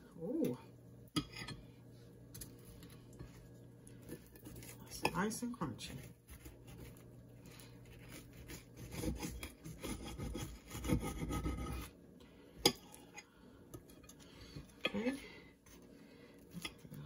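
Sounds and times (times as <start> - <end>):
knife sawing through crispy tortilla: 6.2 - 11.9.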